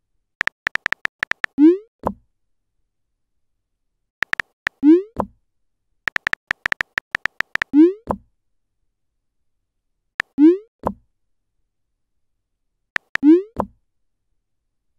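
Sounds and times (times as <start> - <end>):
keyboard tap clicks: 0.4 - 1.5, 4.2 - 4.8, 6.1 - 7.7, 13.0 - 13.2.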